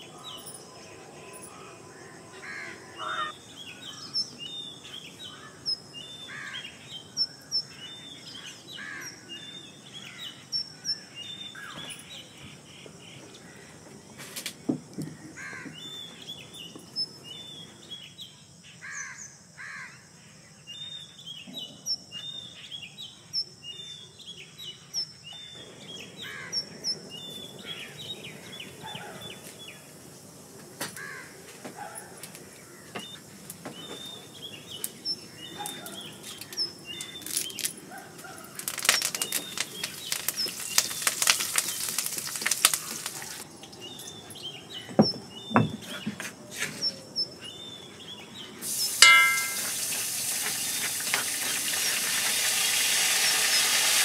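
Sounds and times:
small birds chirping: 0.0 - 19.3, 20.4 - 54.0
dense crackling: 38.6 - 43.4
hot oil sizzling: 38.6 - 43.5, 48.6 - 54.0.

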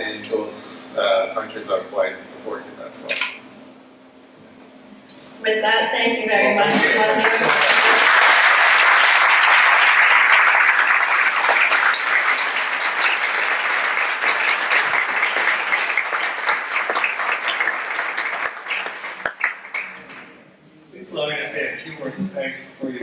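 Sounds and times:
audience applause: 6.8 - 20.4.

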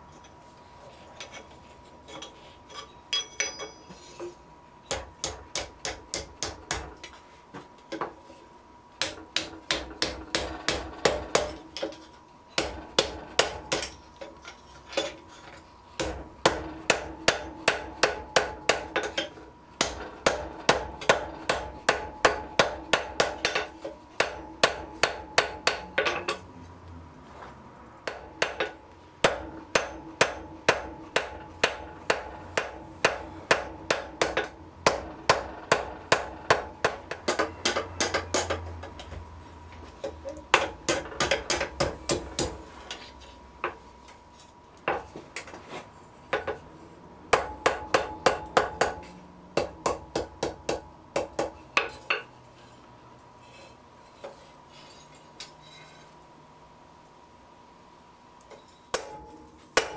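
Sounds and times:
steady anvil ring: 2.2 - 4.0, 58.5 - 59.9
hammer striking iron on anvil: 3.1 - 3.9, 4.9 - 7.0, 9.0 - 12.0, 12.6 - 14.3, 16.0 - 26.4, 28.0 - 39.0, 40.5 - 42.6, 47.3 - 52.3, 58.5 - 59.9.

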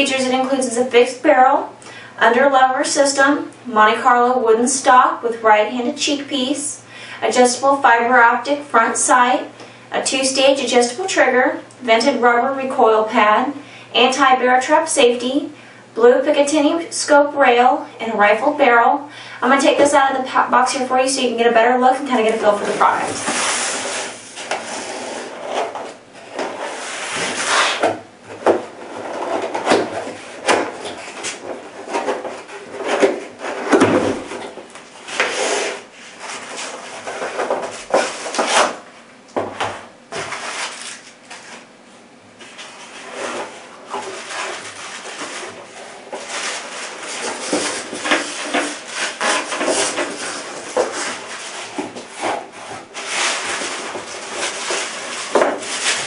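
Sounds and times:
cardboard box scraping and rustling: 22.3 - 27.9, 42.4 - 56.0.

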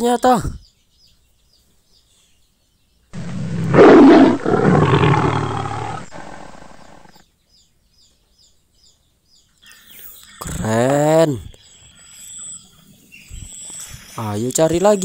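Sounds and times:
big cat roaring: 3.2 - 7.2.

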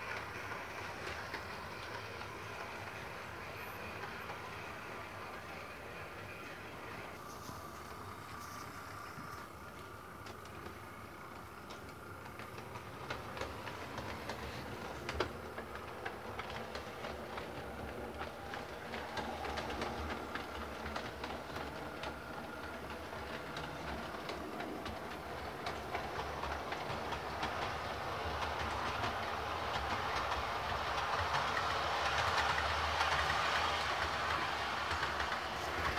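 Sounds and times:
wheels clicking over rail joints: 7.8 - 35.9.

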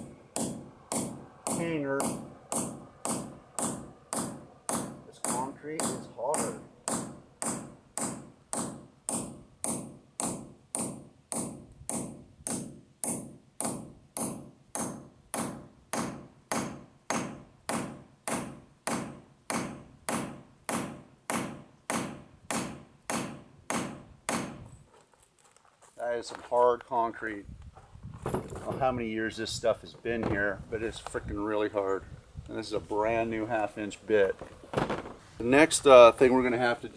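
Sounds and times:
hammer striking hand drill: 0.0 - 24.6.

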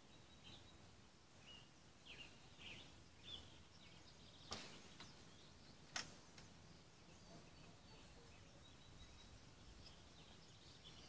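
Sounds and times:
outdoor hiss: 0.0 - 11.0
small birds chirping: 0.0 - 11.0
sharp clicks: 5.9 - 6.5.

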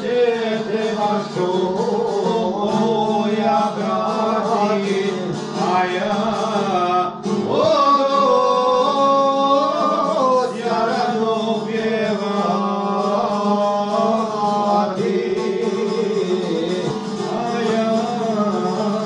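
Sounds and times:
strummed lute: 0.0 - 19.0
two men singing folk song: 0.0 - 19.0.

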